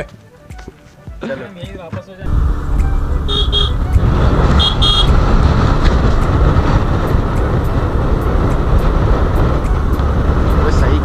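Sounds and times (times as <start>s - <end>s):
scooter running noise: 2.2s - 11.0s
wind rush on microphone: 2.2s - 11.0s.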